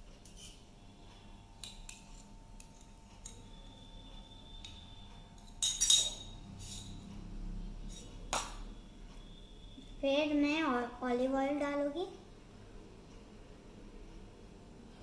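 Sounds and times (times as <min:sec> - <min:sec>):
utensils clinking against glass bowl: 0:01.6 - 0:03.6, 0:05.4 - 0:07.1.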